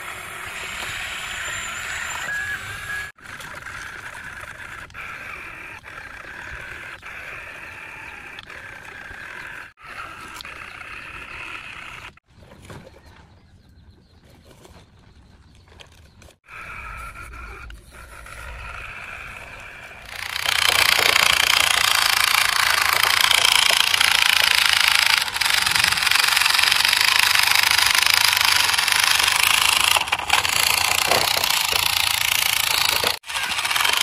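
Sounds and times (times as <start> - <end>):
loud mechanical rattling: 16.7 - 34.0.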